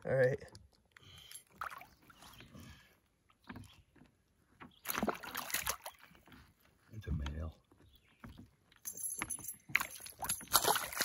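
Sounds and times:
knocks and handling in a boat: 3.2s - 11.0s.

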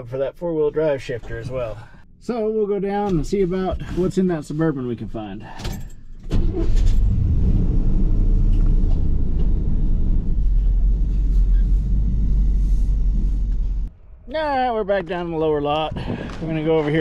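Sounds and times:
truck engine starting and rumbling: 5.4s - 14.6s.

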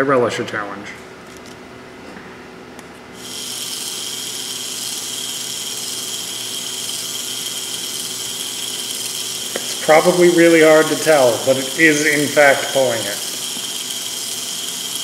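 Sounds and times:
small electric motor whining: 3.2s - 15.0s.

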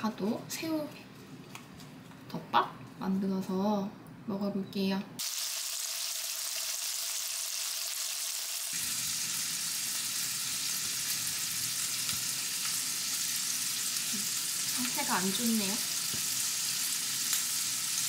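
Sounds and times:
food sizzling in a pan: 5.2s - 18.0s.

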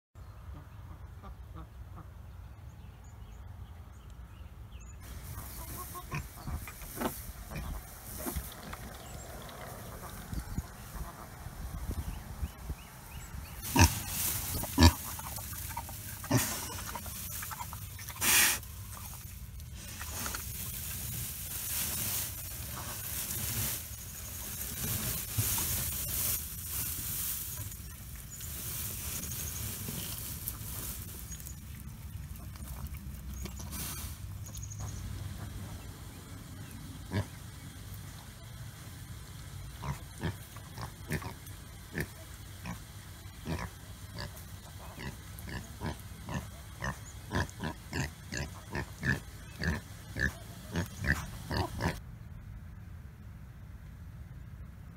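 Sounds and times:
small birds chirping: 2.6s - 38.6s
pigs rooting in straw: 5.0s - 35.6s, 39.7s - 52.0s
low steady rumble: 5.1s - 54.9s
pig grunts: 44.9s - 52.0s.

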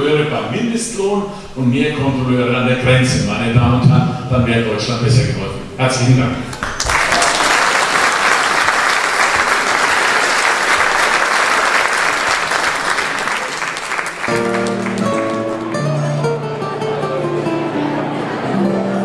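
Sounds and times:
audience applauding: 6.5s - 16.3s.

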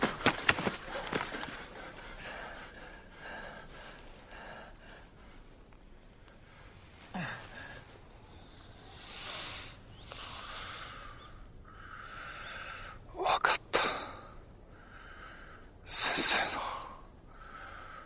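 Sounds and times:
shaky breaths: 0.0s - 5.6s
man sobbing: 7.1s - 7.9s.

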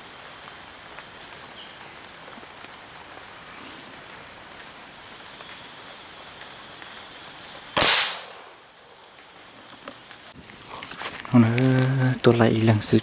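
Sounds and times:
faint forest background: 0.0s - 13.0s
gunshot with echo: 7.8s - 8.6s.

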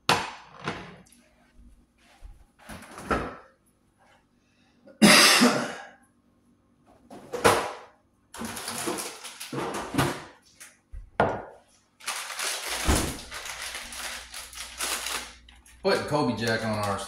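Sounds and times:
plastic bag crinkling: 8.4s - 10.0s, 12.0s - 17.0s.

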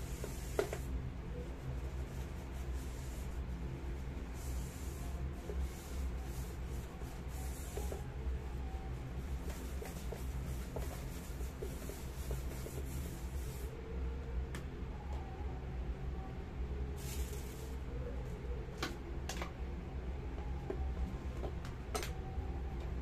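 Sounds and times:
steady low hum: 0.0s - 23.0s
tissue paper wiping a pan: 4.4s - 8.0s, 9.4s - 13.7s.

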